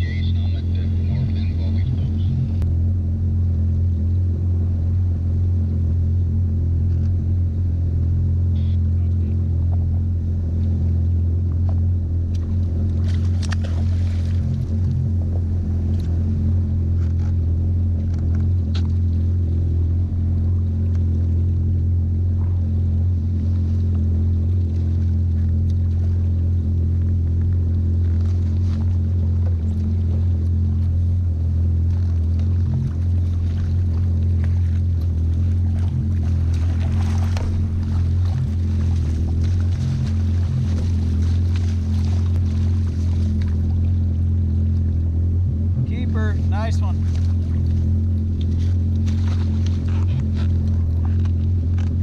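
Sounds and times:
jet ski engine idling: 0.0 - 52.0.

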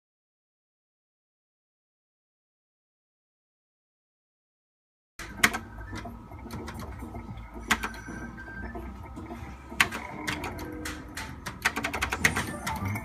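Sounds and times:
steady electronic tones: 5.2 - 13.0.

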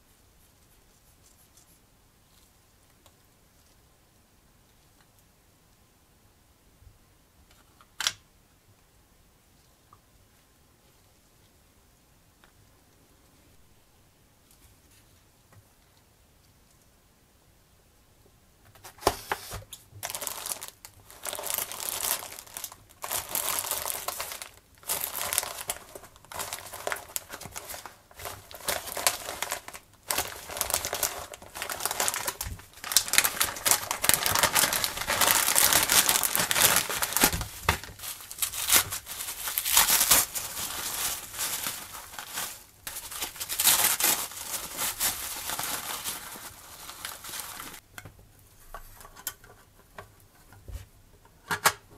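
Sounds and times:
plastic bags crinkling: 20.0 - 47.8.

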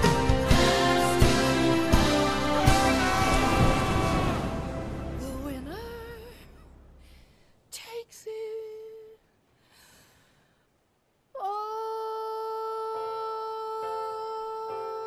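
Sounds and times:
woman singing: 5.2 - 6.5, 7.7 - 9.2, 11.4 - 15.0
breath: 7.0 - 7.6, 9.5 - 10.8.

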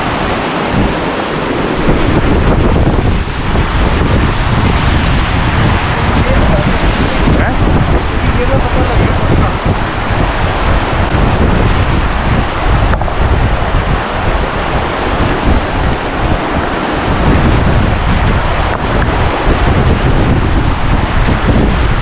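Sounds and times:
river water rushing: 0.0 - 22.0
wind buffeting microphone: 0.0 - 22.0.

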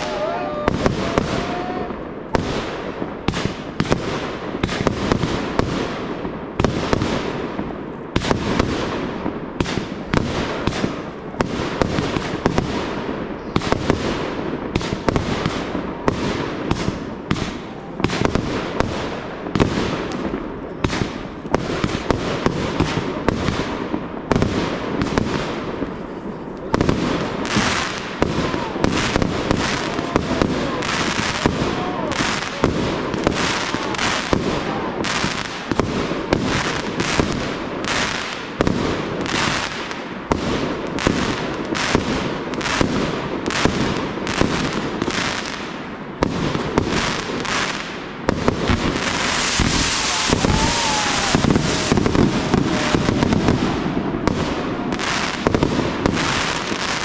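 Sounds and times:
fireworks bursting: 0.0 - 57.0.

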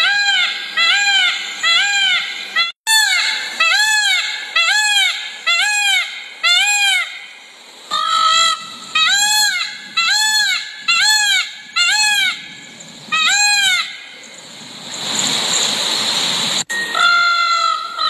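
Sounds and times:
peacock calling: 0.0 - 14.4, 16.8 - 18.0
rushing noise: 14.1 - 17.0.

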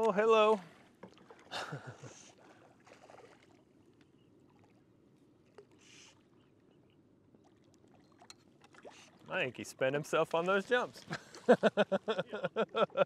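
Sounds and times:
faint water sounds: 0.0 - 13.0
fish splashing at surface: 2.7 - 3.7.

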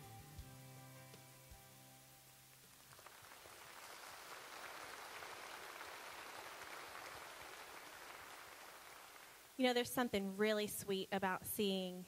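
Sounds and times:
faint applause: 2.6 - 9.5.

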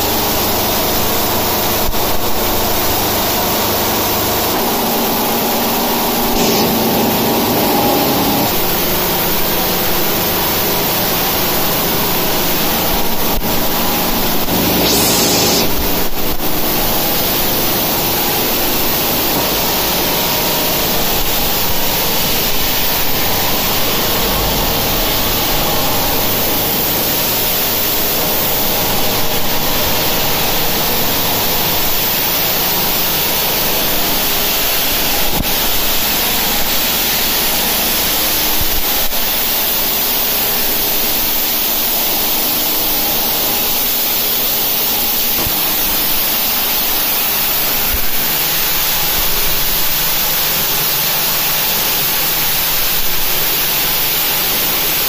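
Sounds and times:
machinery rushing noise: 2.0 - 30.8.

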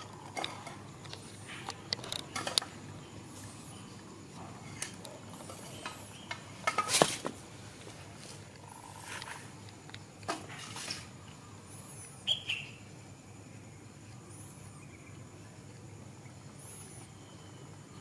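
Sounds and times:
faint high chirps: 11.2 - 18.0.

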